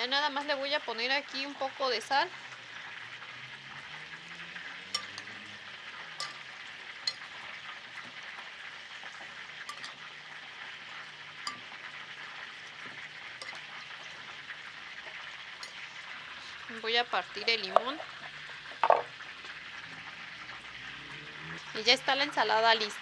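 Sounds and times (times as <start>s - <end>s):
fish sizzling in hot oil: 0.0s - 23.0s
metal spoon clinking ceramic bowl: 4.9s - 5.4s, 6.1s - 7.4s, 9.6s - 10.1s, 11.4s - 11.8s, 12.8s - 14.3s, 15.6s - 15.9s.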